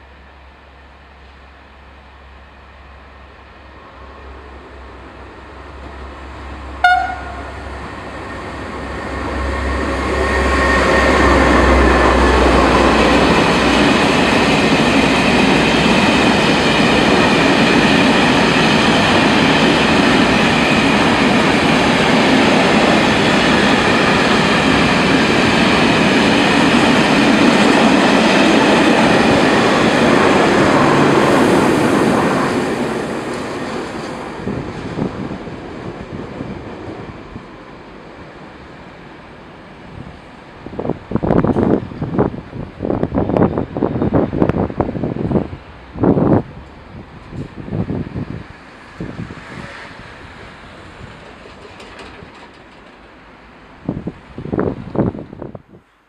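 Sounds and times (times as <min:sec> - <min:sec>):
train wagons rumbling past: 0:02.1 - 0:55.4
train horn blast: 0:06.8 - 0:07.8.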